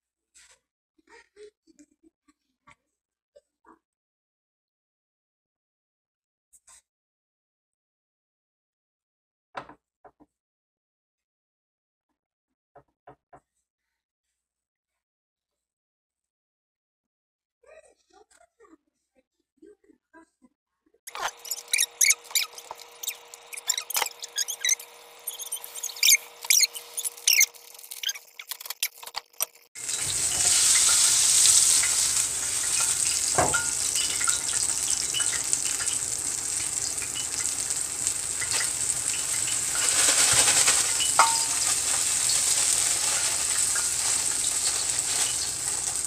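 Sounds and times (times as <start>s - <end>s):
oil sizzling in a skillet: 21.1s - 46.0s.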